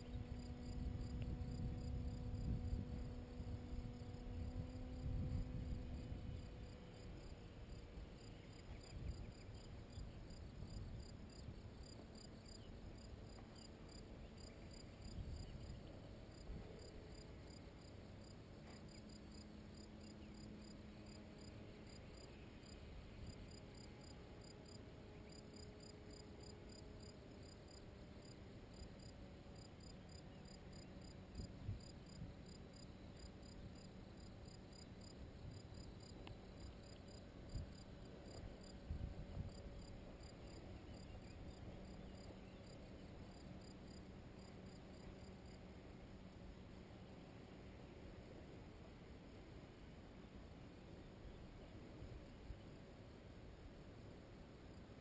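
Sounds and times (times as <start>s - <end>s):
wind rumble on microphone: 0.0s - 13.5s, 14.2s - 16.8s, 31.3s - 32.5s, 35.1s - 42.6s
crickets chirping: 0.0s - 55.0s
faint low hum: 0.0s - 55.0s.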